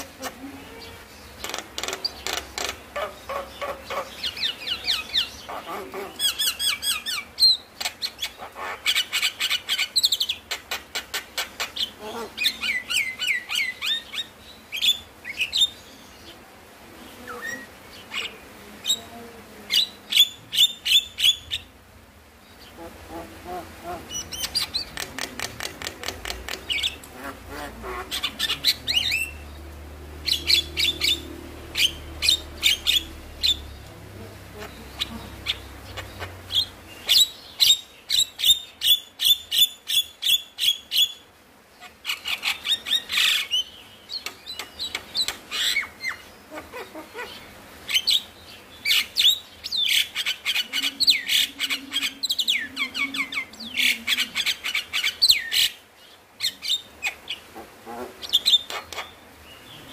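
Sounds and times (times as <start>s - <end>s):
myna chattering: 0.0s - 6.8s, 22.7s - 29.5s, 30.2s - 37.2s.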